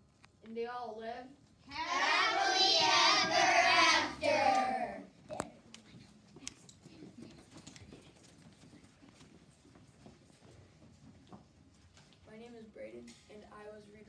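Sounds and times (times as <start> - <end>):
children singing in unison: 1.8 - 5.0
faint knocks and shuffling: 5.2 - 13.8.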